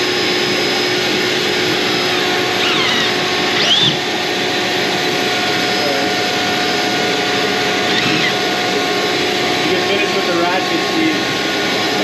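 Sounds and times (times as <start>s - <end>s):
cordless drill whirring: 0.0s - 10.6s
dust extraction vacuum: 0.0s - 12.0s
short gliding squeaks: 7.9s - 8.4s.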